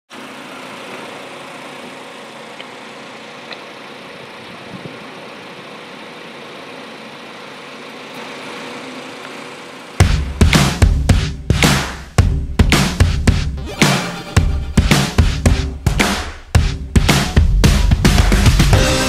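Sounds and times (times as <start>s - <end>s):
car engine idling: 0.3s - 12.7s.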